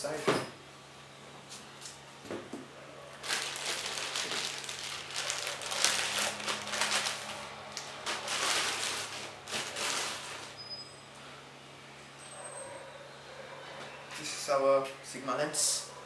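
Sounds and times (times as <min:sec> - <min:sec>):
plastic wrapping crinkling: 0:03.1 - 0:10.6.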